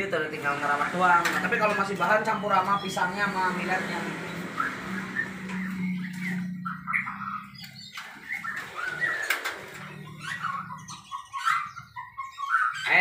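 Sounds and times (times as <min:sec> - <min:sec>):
small birds chirping: 0:00.0 - 0:13.0
wings fluttering: 0:07.9 - 0:10.6.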